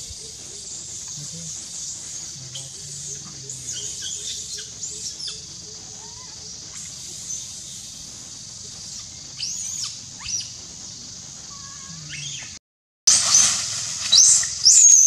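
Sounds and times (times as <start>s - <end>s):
high insect drone: 0.0s - 15.0s
high-pitched chirp-like calls: 11.4s - 12.6s.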